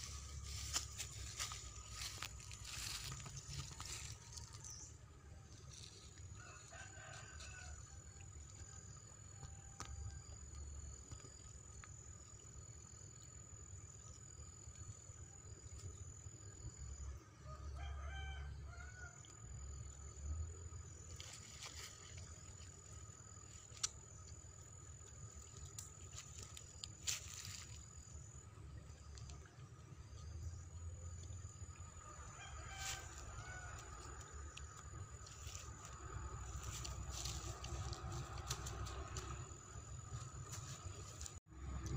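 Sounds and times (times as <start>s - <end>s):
low rumble: 0.0s - 6.4s, 33.0s - 41.9s
steady high-pitched whine: 0.0s - 41.9s
rooster crowing: 6.4s - 8.3s, 17.5s - 19.2s, 32.0s - 34.4s.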